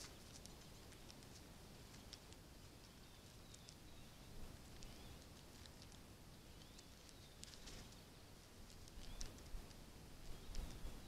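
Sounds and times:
bird chirps: 2.8s - 5.3s, 6.4s - 8.2s, 8.9s - 9.4s.

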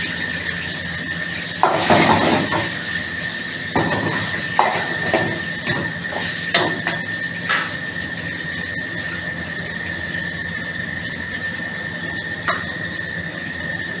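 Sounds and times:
steady high whine: 0.0s - 14.0s.

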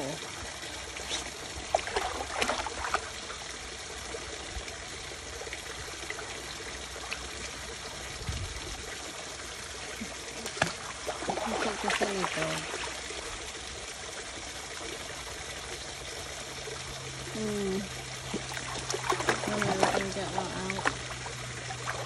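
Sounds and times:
shallow stream trickling: 0.0s - 22.0s
dog splashing in water: 0.8s - 3.4s, 10.0s - 13.2s, 18.3s - 22.0s.

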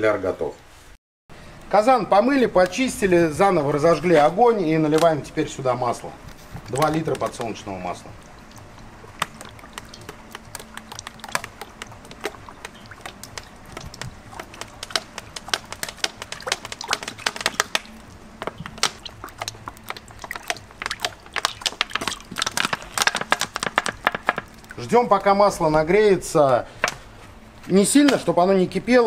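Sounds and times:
oil pouring clicks and crackles: 6.2s - 25.3s.

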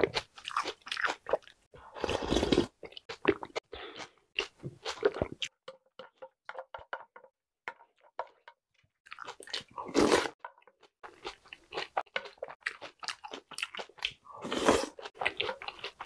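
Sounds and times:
chewing crunchy snacks: 0.0s - 5.5s, 9.1s - 16.0s
slurping milk: 1.8s - 2.8s, 9.6s - 10.4s.

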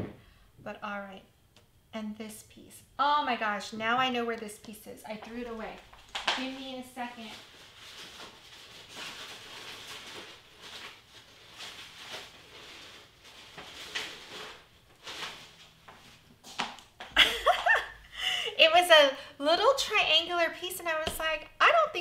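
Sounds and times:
paper rustling: 5.3s - 16.7s.

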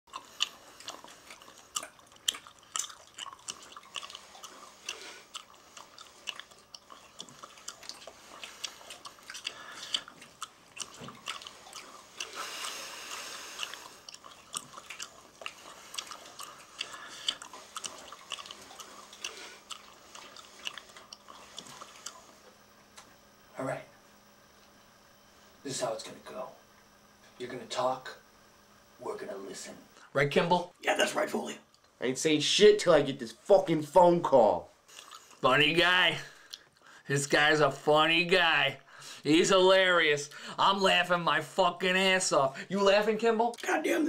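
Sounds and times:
person chewing gum: 0.1s - 23.4s, 31.7s - 32.0s, 34.8s - 37.0s.

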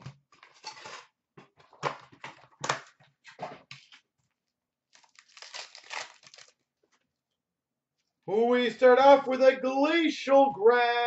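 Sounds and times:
packaging crinkling: 4.9s - 6.6s
packaging ripping: 4.9s - 6.6s.

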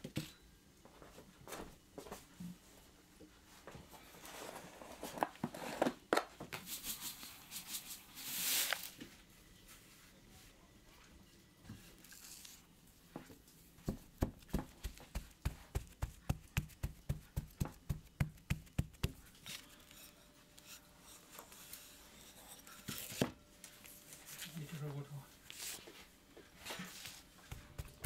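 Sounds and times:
hands patting dough: 13.8s - 19.4s, 27.3s - 28.0s.

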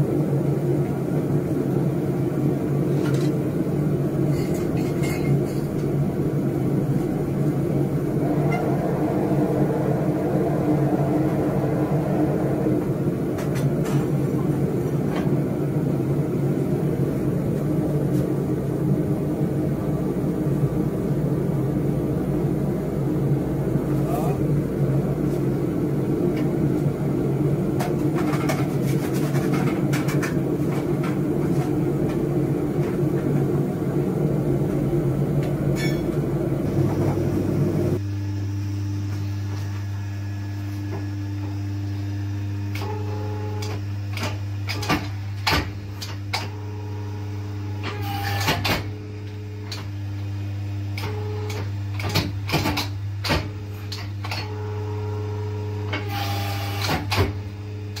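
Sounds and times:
gas forge burner rushing: 0.0s - 38.1s, 42.3s - 50.0s.

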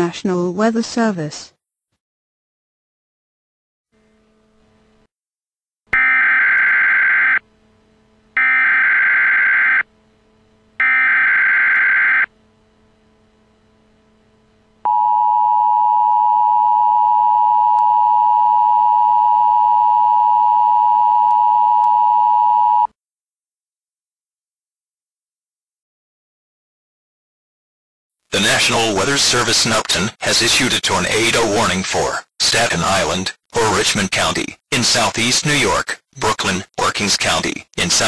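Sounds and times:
steady single-pitch attention tone: 14.8s - 22.9s.

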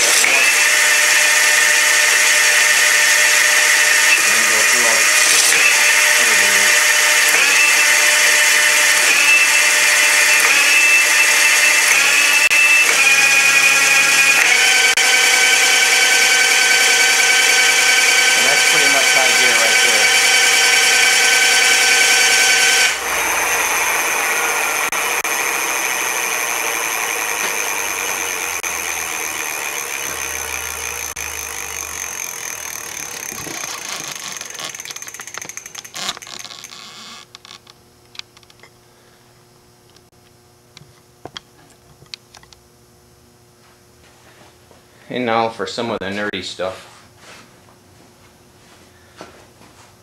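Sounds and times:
electric bike motor whining: 0.0s - 37.7s
drivetrain spinning down: 4.0s - 37.4s.

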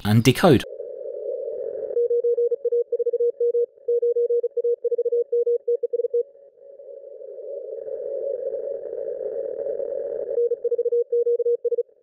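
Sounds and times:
morse code keyed tone: 2.0s - 6.3s, 10.4s - 11.9s.

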